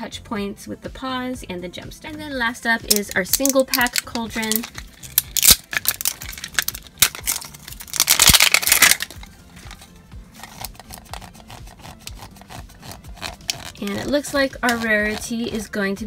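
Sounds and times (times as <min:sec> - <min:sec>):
plastic wrap crinkling and tearing: 0:02.9 - 0:15.3.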